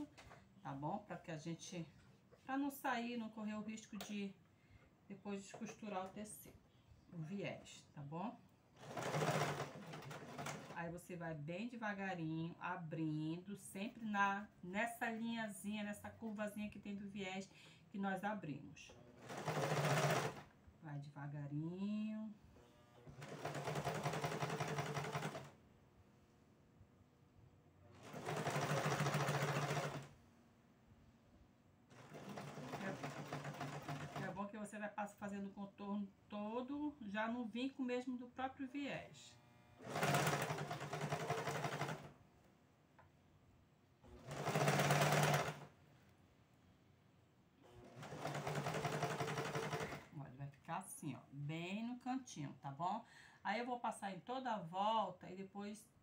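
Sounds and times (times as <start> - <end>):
sewing machine stitching: 8.8 - 10.8, 19.2 - 20.5, 23.0 - 25.6, 28.0 - 30.1, 31.9 - 34.4, 39.8 - 42.1, 44.1 - 45.7, 47.6 - 50.1.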